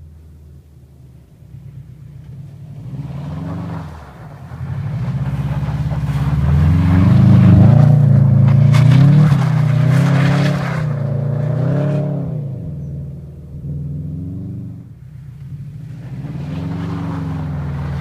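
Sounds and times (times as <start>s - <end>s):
engine crackles: 0.0s - 18.0s
car engine revving: 0.4s - 18.0s
wheels spinning on snow: 1.6s - 12.1s, 15.0s - 18.0s.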